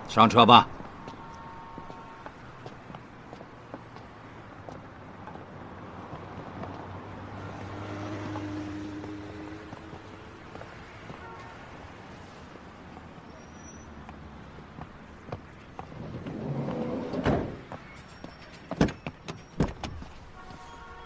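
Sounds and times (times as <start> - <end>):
sliding van door running on track: 15.8 - 18.0.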